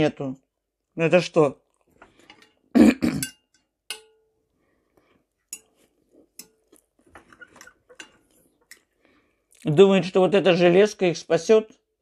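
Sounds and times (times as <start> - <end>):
metal fork clinking on a plate: 3.2 - 4.3, 5.5 - 5.8, 6.4 - 6.7.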